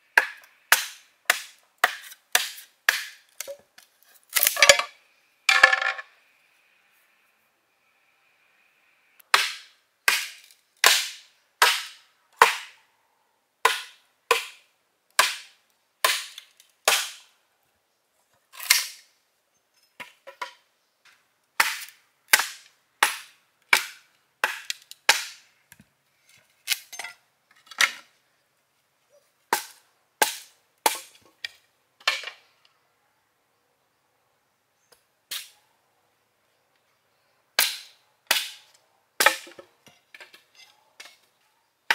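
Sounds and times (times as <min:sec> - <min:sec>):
blade chopping bamboo: 0:00.2 - 0:03.5.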